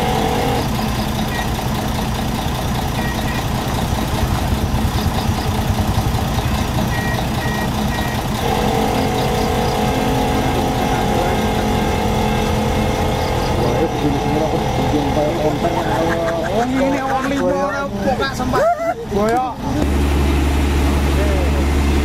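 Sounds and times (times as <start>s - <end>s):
diesel truck engine running: 0.0s - 22.0s
steady mid-pitched tone: 2.9s - 16.6s
short high beeps: 3.0s - 3.5s, 6.9s - 8.3s.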